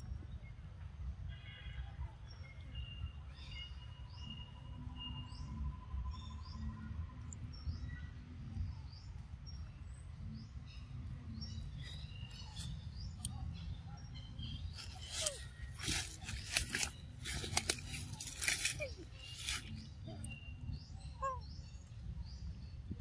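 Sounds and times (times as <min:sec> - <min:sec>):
small birds chirping: 0:01.5 - 0:23.0
rustling and crackling clicks: 0:15.2 - 0:19.7.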